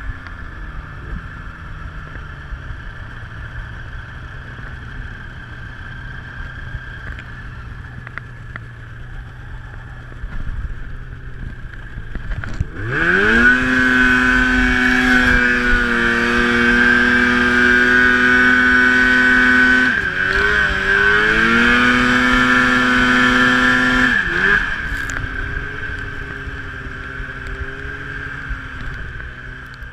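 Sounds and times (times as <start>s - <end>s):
steady high whine: 0.0s - 29.9s
snowmobile engine revving: 12.0s - 29.8s.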